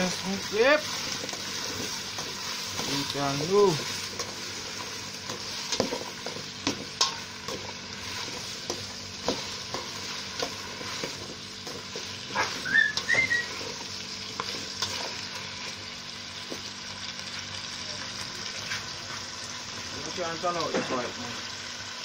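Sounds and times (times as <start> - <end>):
vegetables sizzling in a pot: 0.0 - 22.0.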